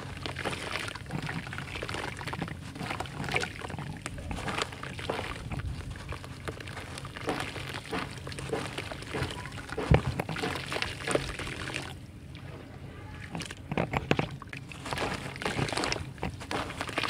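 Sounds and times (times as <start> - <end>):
dirt crumbling and crackling: 0.0 - 11.9, 13.3 - 17.0
hand sloshing water: 0.0 - 17.0.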